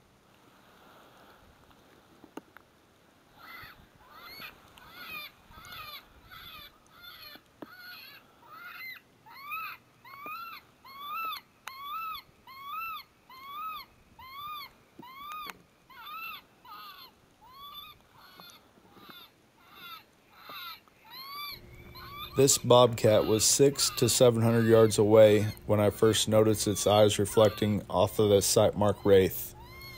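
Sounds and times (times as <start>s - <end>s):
electronic high squealing notes: 21.5s - 29.9s.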